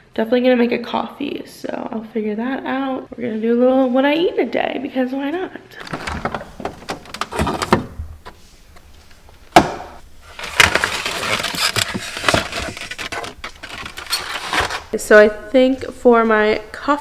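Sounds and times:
egg carton rustling and clattering: 0:05.8 - 0:08.4, 0:10.2 - 0:15.0
refrigerator door opening: 0:05.8 - 0:08.4.

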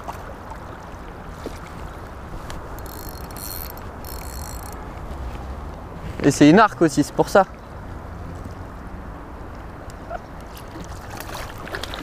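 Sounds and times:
river water running: 0:00.0 - 0:12.0
spinning reel whirring: 0:02.7 - 0:04.8.

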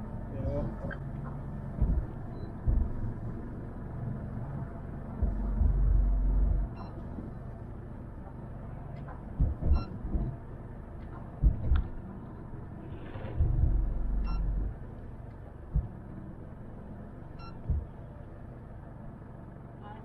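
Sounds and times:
boat engine humming: 0:00.0 - 0:20.0
heavy low thumps: 0:01.6 - 0:03.9, 0:04.6 - 0:06.9, 0:09.3 - 0:10.6, 0:11.3 - 0:12.6, 0:13.3 - 0:14.9, 0:15.6 - 0:16.2, 0:17.2 - 0:18.0.

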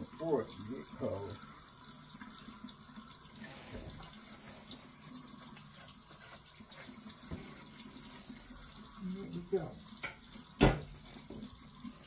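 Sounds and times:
tap running into sink: 0:05.5 - 0:08.2, 0:09.8 - 0:11.7.

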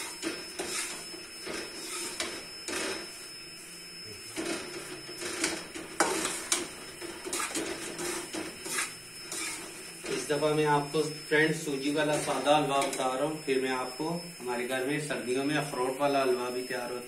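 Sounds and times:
metal spatula scraping a wok: 0:07.2 - 0:09.7.

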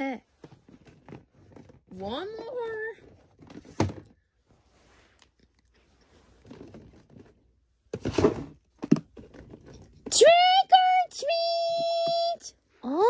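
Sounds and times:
plastic toys rustling and clattering: 0:00.0 - 0:10.3.

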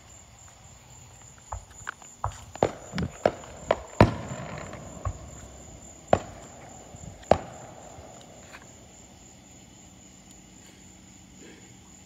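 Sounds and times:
fireworks cracking: 0:00.0 - 0:09.6
firework hiss: 0:02.6 - 0:09.2.

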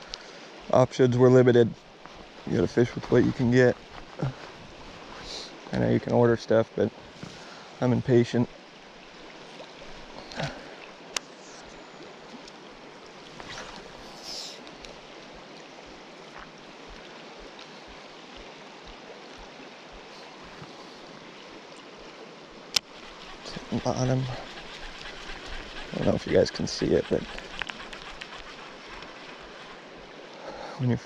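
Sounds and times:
fast-flowing river rushing: 0:12.7 - 0:30.4.

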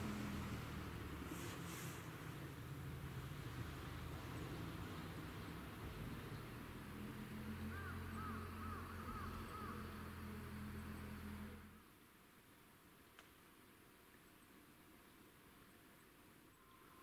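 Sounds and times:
distant railcar engine hum: 0:00.0 - 0:11.8
bird calling: 0:07.7 - 0:09.8.

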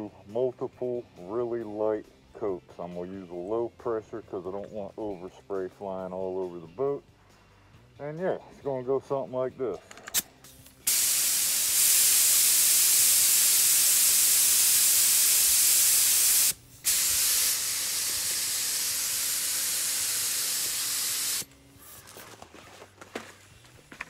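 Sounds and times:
spray gun hissing: 0:10.8 - 0:21.5.

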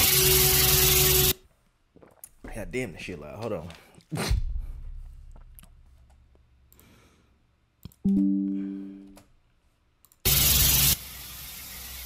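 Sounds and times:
low plucked note ringing: 0:08.1 - 0:09.2.

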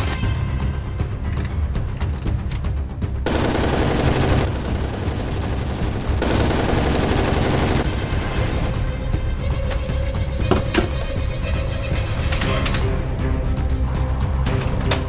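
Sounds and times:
automatic rifle fire: 0:03.3 - 0:08.8.

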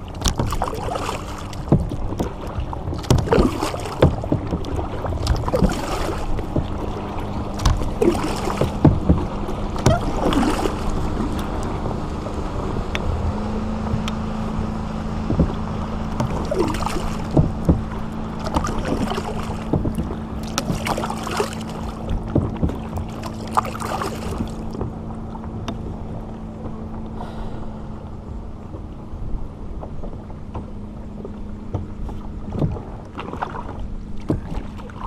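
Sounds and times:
paddle splashing in water: 0:00.0 - 0:28.0, 0:28.6 - 0:35.0
steady low hum: 0:00.0 - 0:35.0
short knocks: 0:15.2 - 0:21.1.

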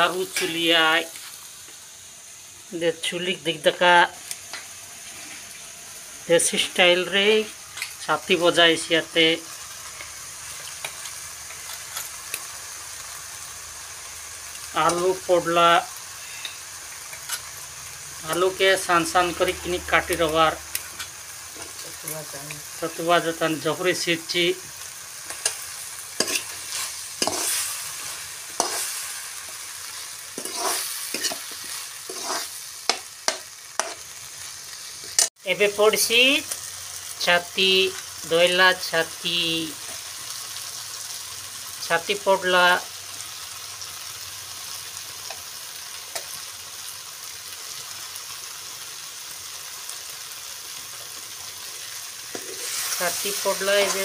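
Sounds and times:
oil sizzling: 0:00.0 - 0:54.0
spatula scraping a pan: 0:25.2 - 0:35.3, 0:51.6 - 0:54.0.

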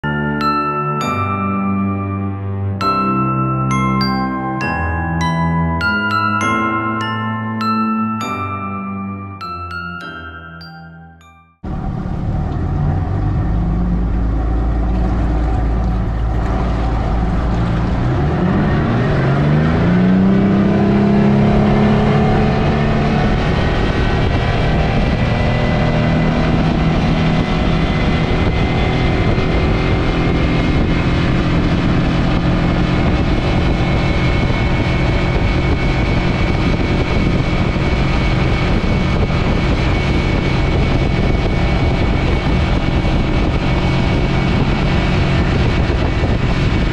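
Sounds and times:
outboard motor revving: 0:11.7 - 0:46.9.

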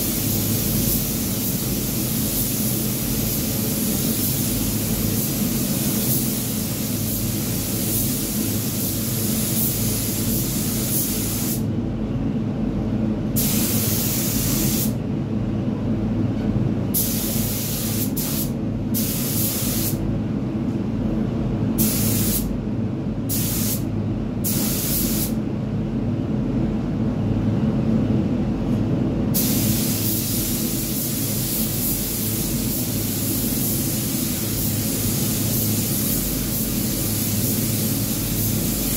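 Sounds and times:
spray gun hissing: 0:00.0 - 0:11.6, 0:13.4 - 0:14.9, 0:17.0 - 0:20.0, 0:21.8 - 0:22.4, 0:23.3 - 0:23.8, 0:24.4 - 0:25.4, 0:29.4 - 0:38.9
ventilation hum: 0:00.0 - 0:38.9.

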